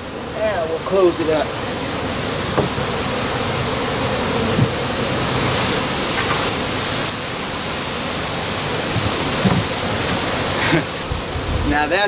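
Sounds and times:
honey bees buzzing: 0:00.0 - 0:12.0
steady rushing hiss: 0:00.0 - 0:12.0
faint knocks: 0:02.5 - 0:02.8, 0:04.5 - 0:04.8, 0:08.9 - 0:10.3.

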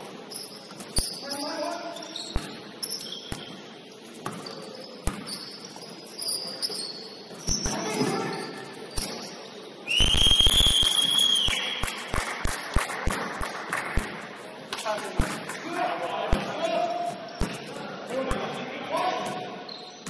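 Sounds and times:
sneaker squeaks: 0:00.0 - 0:10.2, 0:16.6 - 0:20.0
referee whistle blast: 0:09.9 - 0:11.8.

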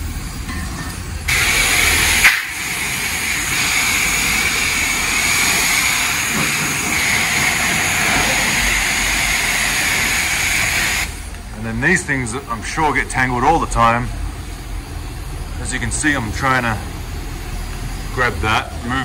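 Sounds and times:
pressure washer spraying water: 0:01.3 - 0:11.3.

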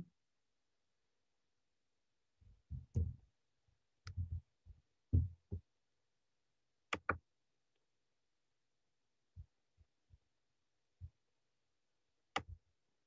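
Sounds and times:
thuds on a microphone: 0:02.7 - 0:03.2, 0:05.1 - 0:05.6.

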